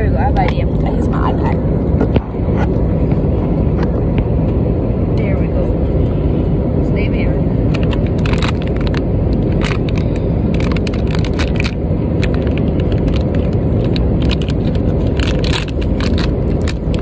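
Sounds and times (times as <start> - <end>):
airliner cabin engine noise: 0.0 - 17.0
plastic wrapper crinkling: 7.7 - 17.0.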